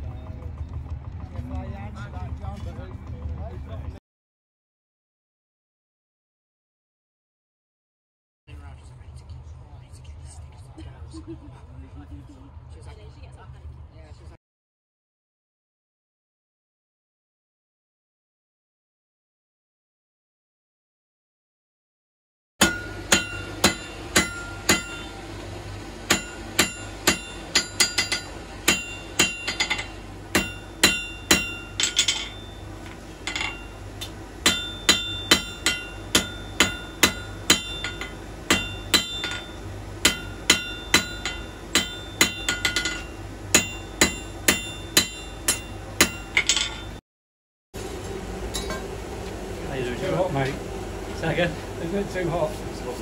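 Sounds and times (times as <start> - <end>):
hammer striking metal: 22.6 - 25.4, 26.0 - 47.0.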